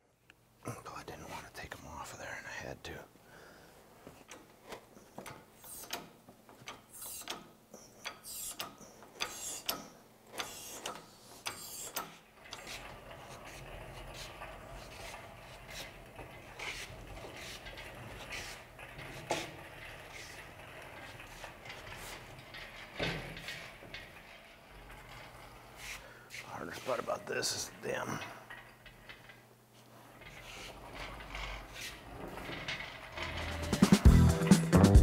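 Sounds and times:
hydraulic hoist pumping clicks: 0:04.2 - 0:27.1.

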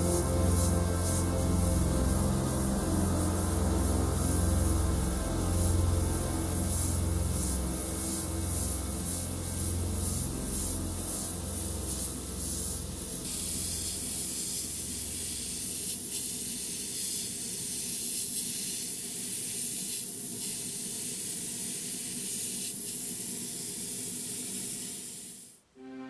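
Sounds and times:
airbrush spraying hiss: 0:00.0 - 0:25.6.

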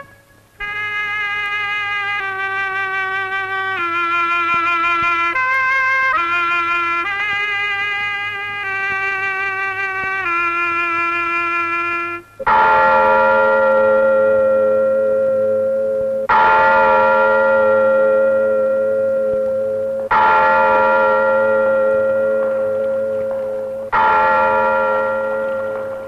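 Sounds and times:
large bell tolling: 0:12.5 - 0:26.0.

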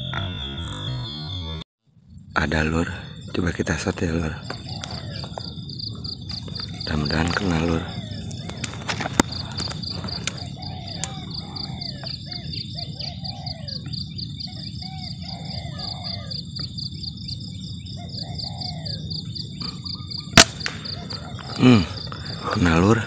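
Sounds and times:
crickets trilling: 0:00.0 - 0:23.0
bird calls: 0:02.4 - 0:23.0
air rifle shot: 0:20.4 - 0:21.1.

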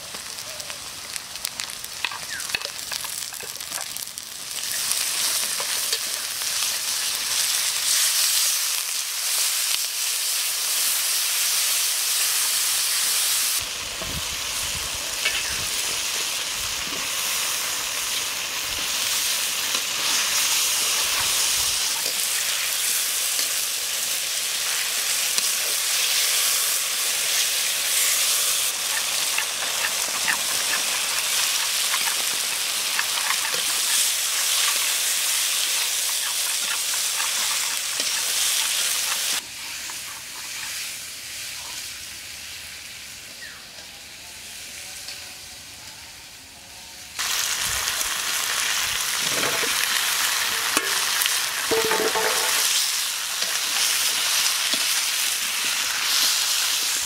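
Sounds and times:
vegetables sizzling in oil: 0:00.0 - 0:45.8, 0:47.1 - 0:57.0
stirring in a pan: 0:28.7 - 0:40.8, 0:50.5 - 0:57.0.

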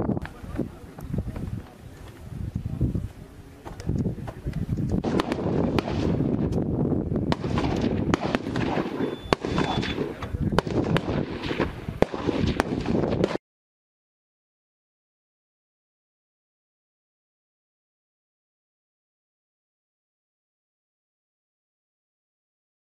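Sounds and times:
loud single gunshots: 0:05.0 - 0:06.3, 0:07.3 - 0:13.4
crackle of gunfire: 0:05.0 - 0:06.6, 0:07.3 - 0:13.4.

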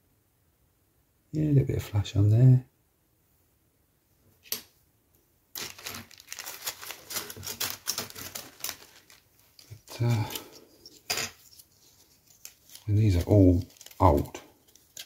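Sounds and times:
plastic bag crinkling: 0:05.6 - 0:15.0.

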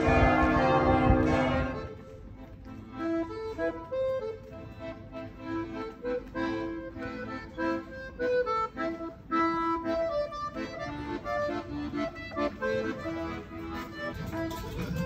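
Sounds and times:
accordion melody: 0:00.0 - 0:15.0.

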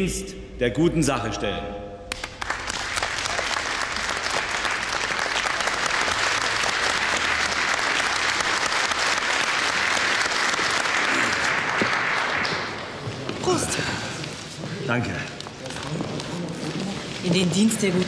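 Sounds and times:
audience applauding: 0:02.1 - 0:13.5.

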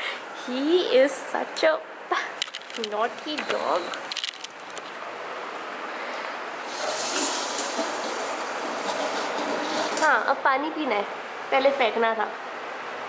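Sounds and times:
water running into metal bowl: 0:06.7 - 0:10.2.

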